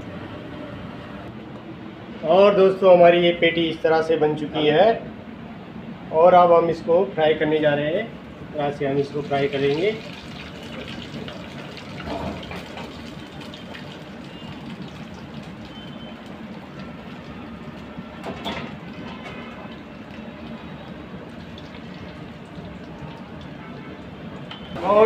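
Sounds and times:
oil sizzling and bubbling: 0:09.0 - 0:25.0.

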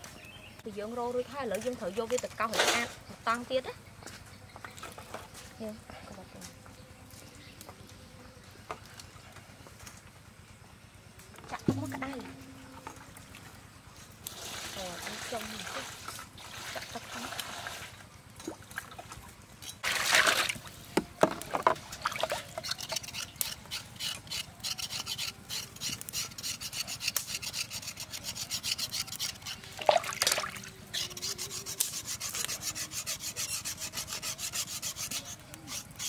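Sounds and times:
knife scraping skin in water: 0:22.1 - 0:36.0.

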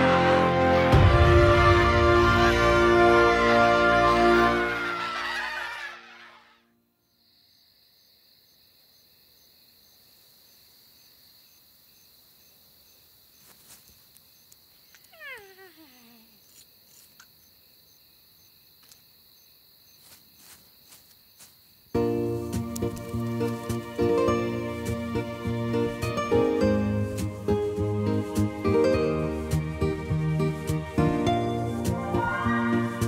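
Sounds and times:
loud music: 0:00.0 - 0:05.8
night insects chirring: 0:02.9 - 0:33.0
small animal cry sliding down: 0:05.1 - 0:06.6.

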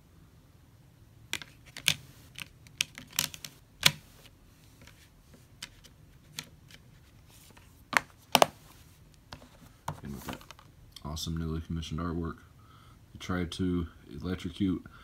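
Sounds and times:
plastic case clicks and taps: 0:07.9 - 0:08.6.

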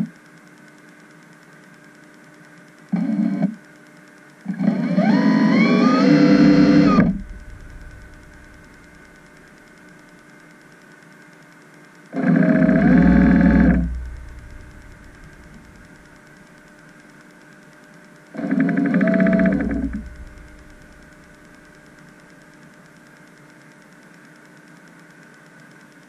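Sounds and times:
electrical hum: 0:00.0 - 0:24.3
thruster motors whining: 0:04.5 - 0:09.9, 0:12.2 - 0:16.8, 0:18.4 - 0:22.3.

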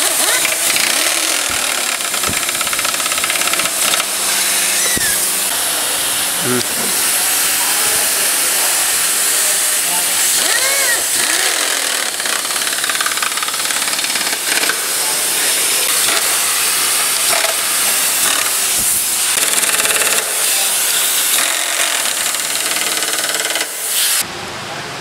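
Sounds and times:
power driver rattling: 0:00.0 - 0:05.5, 0:10.4 - 0:16.4
loud steady hiss: 0:00.0 - 0:24.8.

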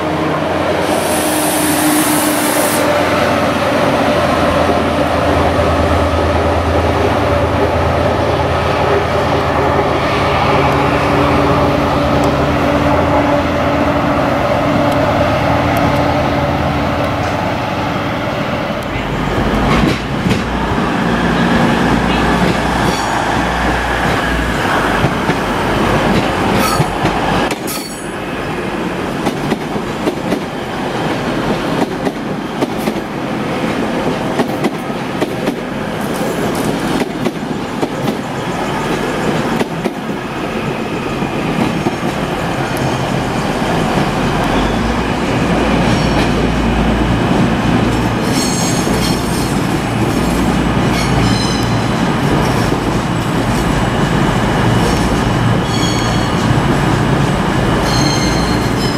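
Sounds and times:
high wheel squeal: 0:55.6 - 0:56.4, 0:57.8 - 0:58.9.

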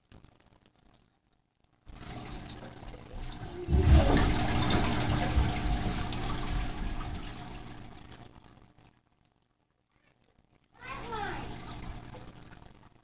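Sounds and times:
water rushing and splashing: 0:02.0 - 0:07.7.

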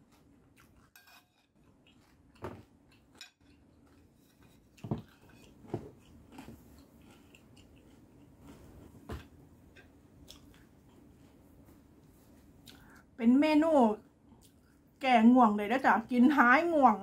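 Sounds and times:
chewing crispy food: 0:00.0 - 0:08.4.

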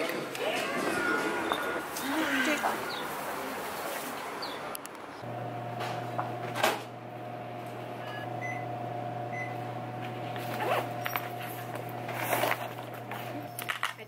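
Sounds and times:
appliance electrical hum: 0:05.2 - 0:14.0.

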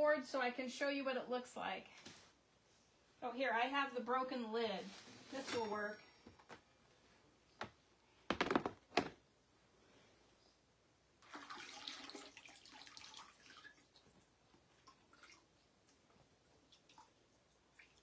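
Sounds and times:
faint running water: 0:11.2 - 0:18.0.

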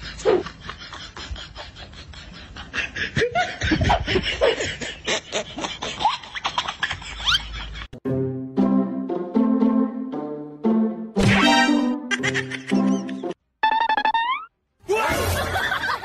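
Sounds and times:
people laughing and giggling: 0:00.0 - 0:08.0, 0:12.1 - 0:13.4, 0:15.2 - 0:16.0
music: 0:08.0 - 0:13.4.

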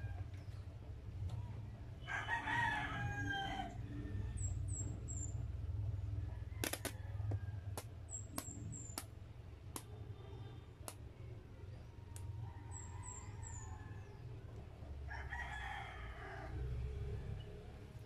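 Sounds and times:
steady low hum: 0:00.0 - 0:18.0
rooster crowing: 0:02.0 - 0:04.5, 0:15.0 - 0:17.6
sharp clicks: 0:06.6 - 0:10.0.

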